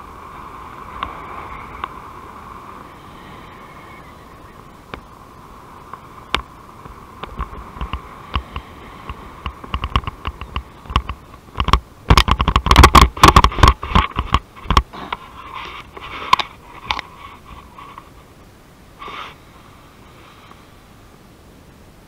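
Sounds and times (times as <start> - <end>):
wind hiss on microphone: 0.0 - 22.0
loud crackles and thumps: 5.9 - 17.1.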